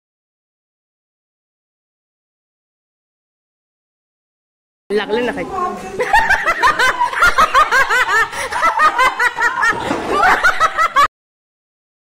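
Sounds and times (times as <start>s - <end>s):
people laughing: 6.0s - 11.1s.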